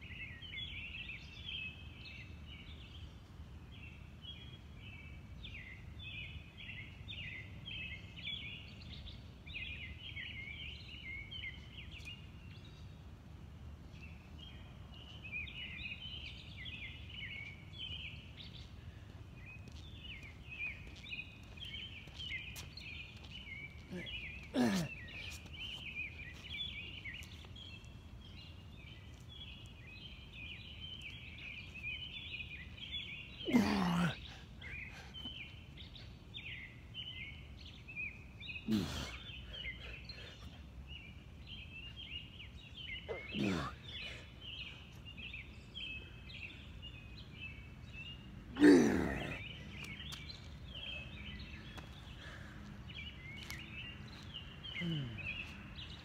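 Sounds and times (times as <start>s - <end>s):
man grunting exhales: 38.7s - 39.2s, 54.8s - 55.4s.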